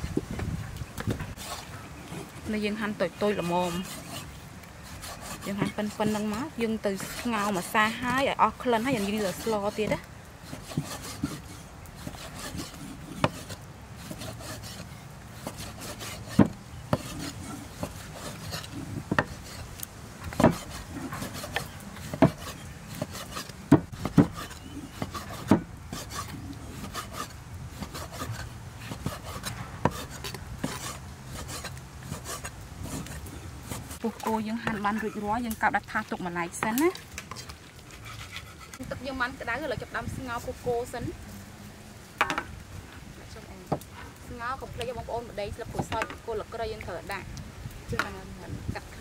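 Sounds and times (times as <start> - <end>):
cleaver scraping through meat: 0.7 - 39.0
cleaver knocking on wooden board: 16.4 - 17.1, 42.2 - 42.5.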